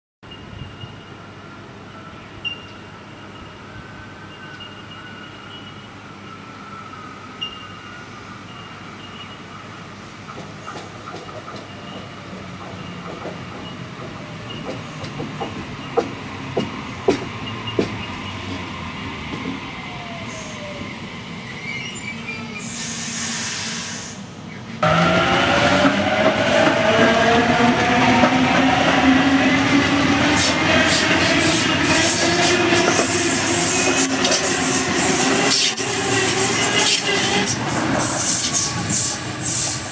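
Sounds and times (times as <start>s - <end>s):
wheels clicking over rail joints: 10.3s - 18.7s
short hiss: 22.6s - 24.3s
wheel and rail noise: 24.5s - 39.9s.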